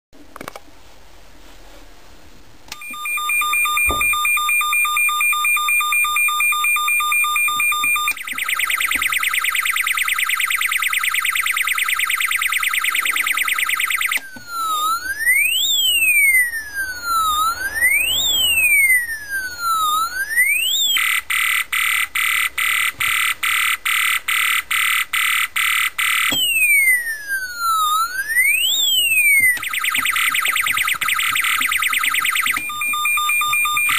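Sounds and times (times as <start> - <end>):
electronic siren switching tones: 2.7 - 33.9.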